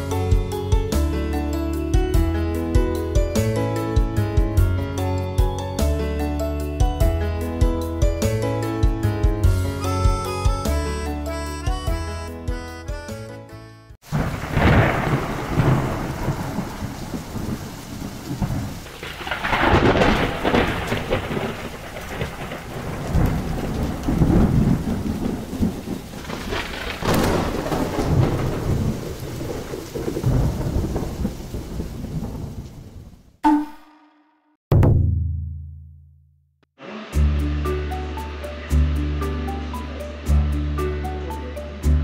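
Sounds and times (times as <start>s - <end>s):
steady rain falling: 14.0s - 33.3s
thunder rumbling: 14.0s - 33.3s.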